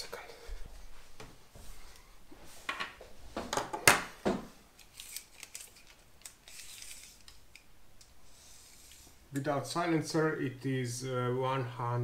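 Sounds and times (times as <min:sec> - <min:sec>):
tape measure scraping: 0:06.4 - 0:07.3.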